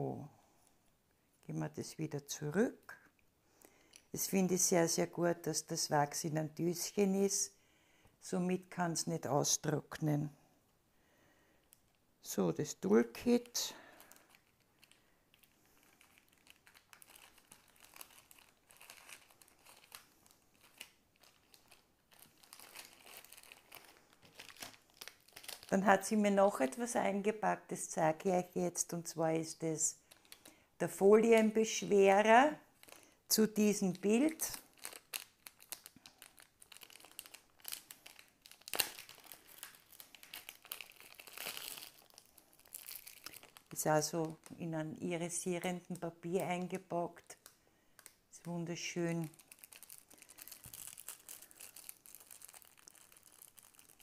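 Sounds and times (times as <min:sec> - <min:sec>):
plastic bag crinkling: 0:11.8 - 0:26.9, 0:29.9 - 0:44.6, 0:45.3 - 0:54.0.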